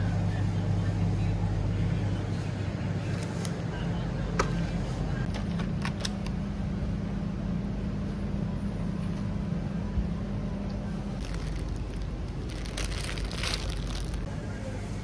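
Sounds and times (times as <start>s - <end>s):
refrigerated display cases humming: 0.0s - 15.0s
plastic packaging clicks: 11.2s - 14.3s.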